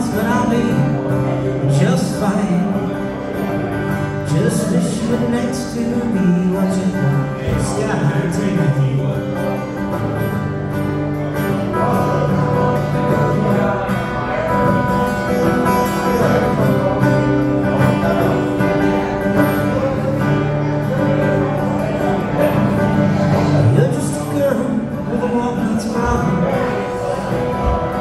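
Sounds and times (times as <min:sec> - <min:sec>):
man singing into a microphone: 0:00.0 - 0:10.0, 0:11.4 - 0:28.0
acoustic guitar playing: 0:00.0 - 0:28.0.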